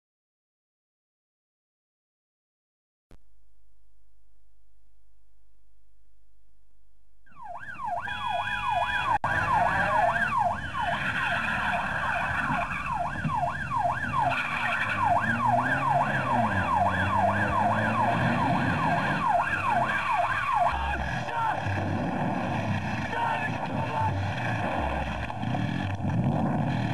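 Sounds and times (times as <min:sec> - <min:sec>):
police sirens wailing: 0:07.3 - 0:26.9.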